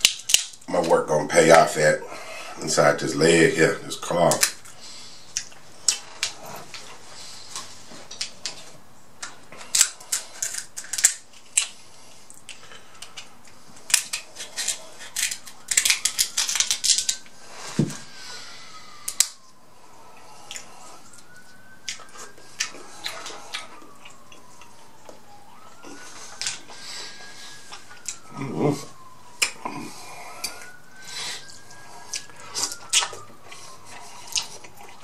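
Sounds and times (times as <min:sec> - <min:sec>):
crab shell cracking: 0:00.0 - 0:00.7, 0:09.2 - 0:17.3.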